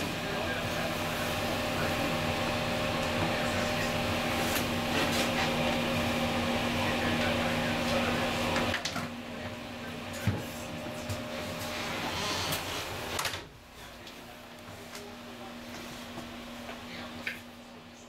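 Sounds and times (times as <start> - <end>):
electric train humming: 0.0 - 13.2.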